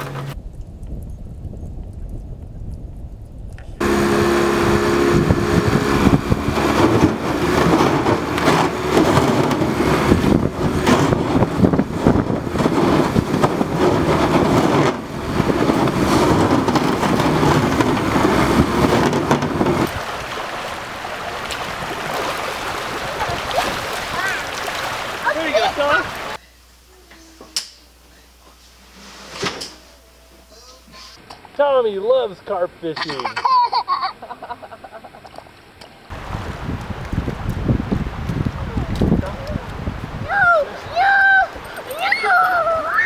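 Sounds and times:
propeller churning water: 3.7 - 26.9, 34.9 - 43.0
outboard motor running hard: 3.8 - 20.1
stream rushing: 3.8 - 26.4, 35.6 - 43.0.

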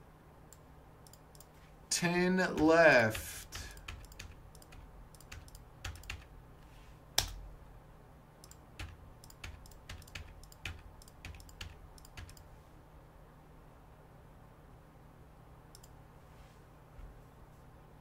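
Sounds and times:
typing on computer keyboard: 2.5 - 6.3, 8.4 - 12.4.

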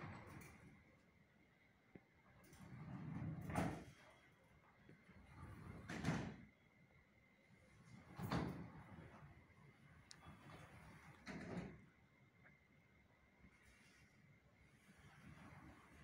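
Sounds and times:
glass door panels rolling on track: 0.0 - 0.8, 2.4 - 4.2, 5.0 - 6.5, 7.8 - 9.6, 10.2 - 12.0, 14.7 - 16.0.

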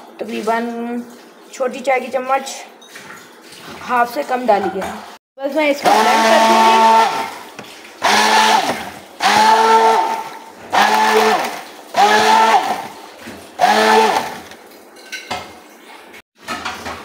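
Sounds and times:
stick blender motor whine: 5.8 - 7.4, 8.0 - 13.0, 13.6 - 14.5.

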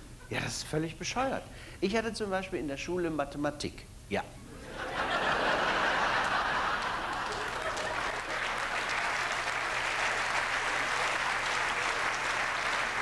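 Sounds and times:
audience laughter: 4.6 - 9.0
audience applauding: 5.4 - 13.0.

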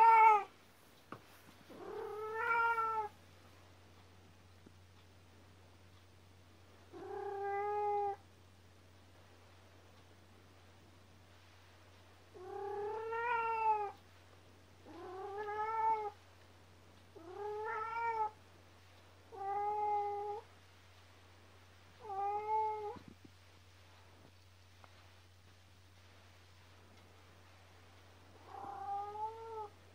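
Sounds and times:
cat meowing: 0.0 - 0.5, 1.8 - 3.2, 12.4 - 14.0, 14.9 - 16.2, 17.2 - 18.4, 22.0 - 23.0, 28.4 - 29.8.

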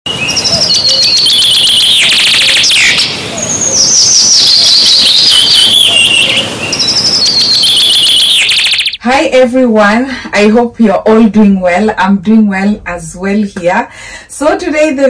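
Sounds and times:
songbird singing: 0.1 - 9.0.

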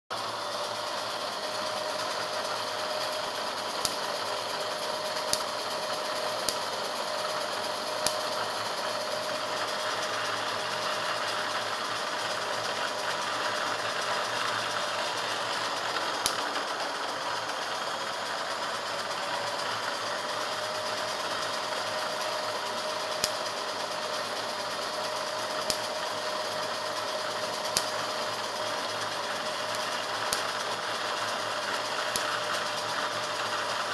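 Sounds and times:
electric fan whining: 0.1 - 33.9.

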